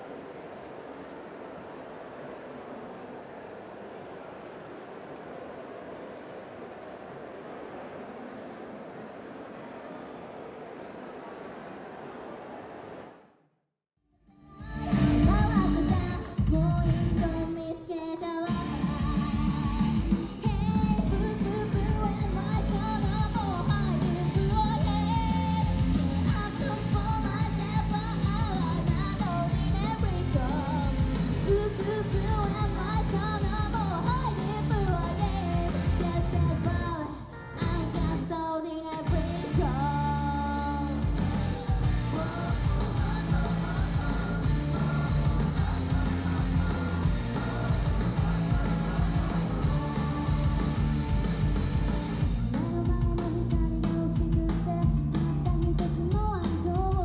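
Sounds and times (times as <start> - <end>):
woman singing: 14.4 - 41.1, 52.3 - 57.0
full band playing: 14.6 - 17.5, 18.5 - 38.4, 39.0 - 57.0
electric guitar: 18.5 - 56.0.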